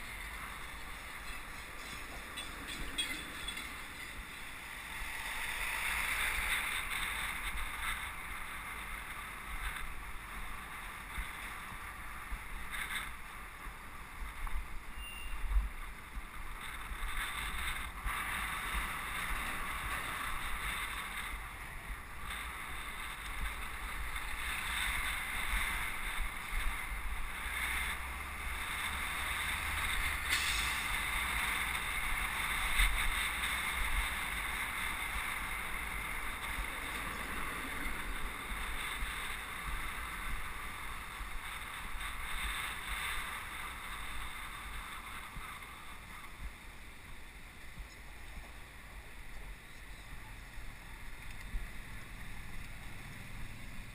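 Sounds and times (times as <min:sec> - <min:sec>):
wind buffeting microphone: 0:00.0 - 0:52.9
road rumble: 0:00.0 - 0:53.9.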